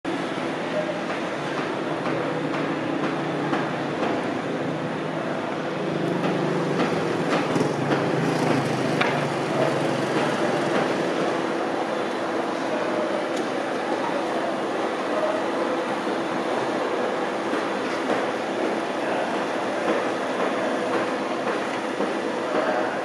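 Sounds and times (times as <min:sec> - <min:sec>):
road traffic: 0:02.2 - 0:14.5
sharp clicks and knocks: 0:06.2 - 0:11.0.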